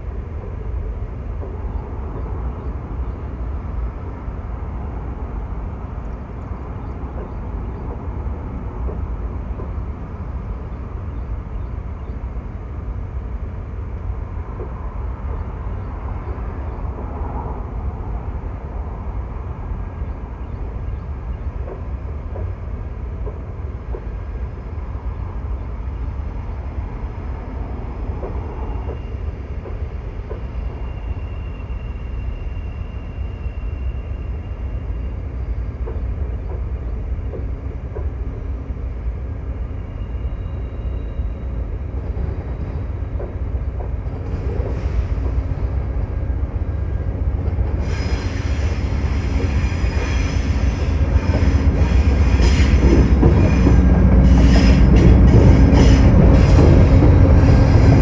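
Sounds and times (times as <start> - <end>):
train cars rumbling on rails: 0.0 - 58.0
high wheel squeal: 30.4 - 35.2, 47.8 - 58.0.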